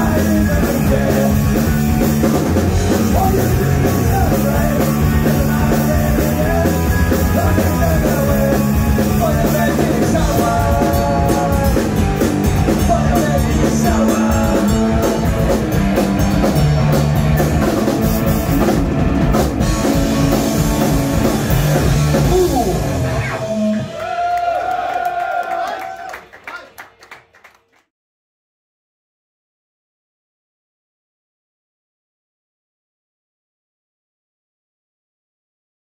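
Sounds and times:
person singing: 0:00.0 - 0:01.8, 0:02.9 - 0:15.6
distorted electric guitar: 0:00.0 - 0:24.0
electric bass: 0:00.0 - 0:24.0
drum kit: 0:00.0 - 0:24.2.

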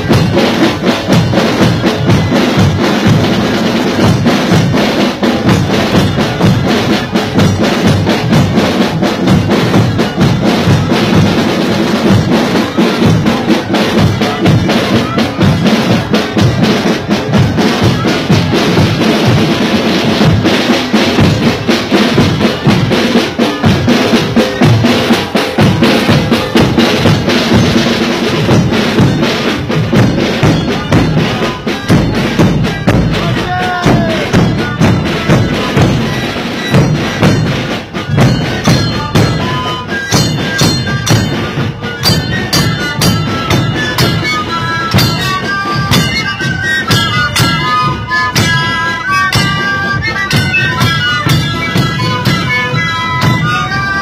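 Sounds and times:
bass drums beating: 0:00.0 - 0:54.0
panpipes playing: 0:22.6 - 0:54.0.

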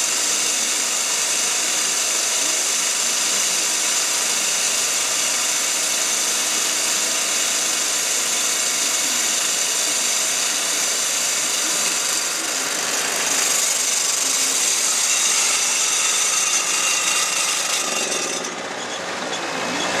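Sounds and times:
core drill running: 0:00.0 - 0:20.0
wet vacuum running: 0:06.0 - 0:20.0.

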